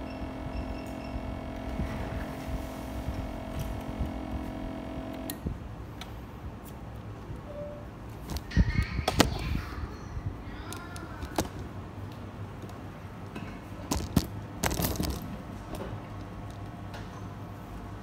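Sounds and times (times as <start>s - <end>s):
faint steady hum: 0.0s - 8.5s.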